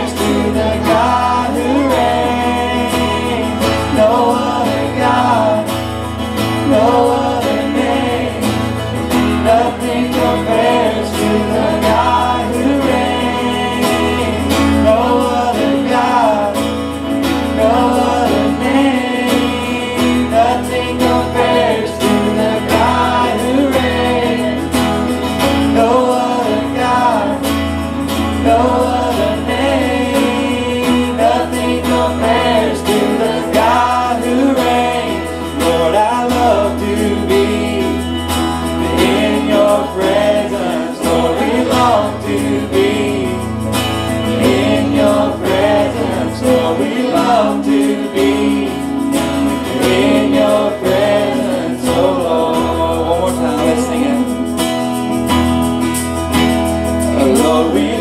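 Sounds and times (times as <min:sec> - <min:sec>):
worship band playing: 0:00.0 - 0:58.0
person singing melody: 0:49.7 - 0:55.1.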